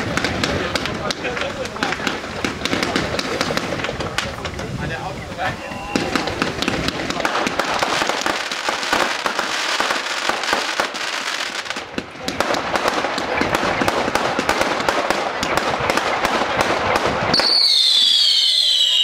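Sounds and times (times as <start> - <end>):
fireworks crackling and popping: 0.0 - 19.0
high falling firework whistle: 5.4 - 6.4, 17.3 - 19.0.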